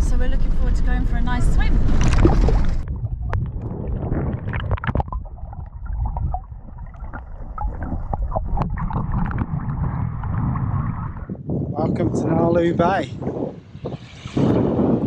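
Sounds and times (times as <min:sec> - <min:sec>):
muffled underwater rumble: 0:00.0 - 0:12.6
sloshing water: 0:01.7 - 0:11.3
small clicks and bubbles: 0:02.0 - 0:11.2.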